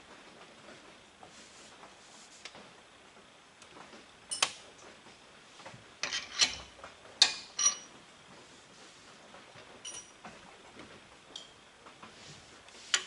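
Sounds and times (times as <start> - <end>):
metallic clinks and taps: 9.8 - 10.2.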